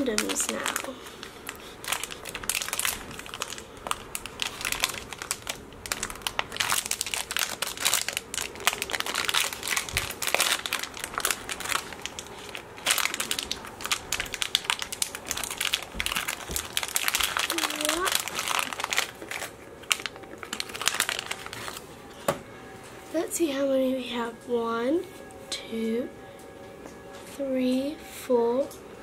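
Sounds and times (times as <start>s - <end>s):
plastic packet crinkling: 0.0s - 21.9s.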